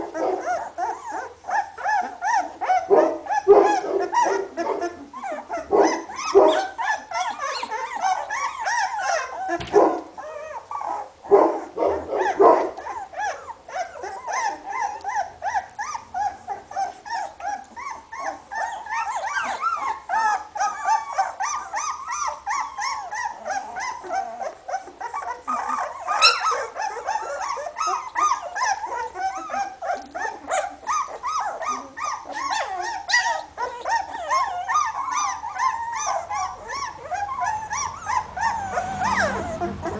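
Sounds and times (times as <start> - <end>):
puppies whimpering and squeaking: 0.0 - 39.9.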